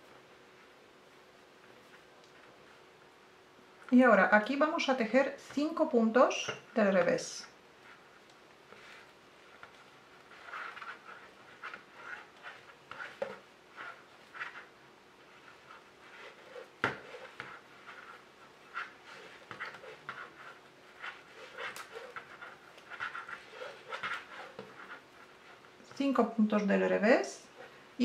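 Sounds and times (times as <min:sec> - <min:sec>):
knitting needles scraping yarn: 0:08.7 - 0:26.2.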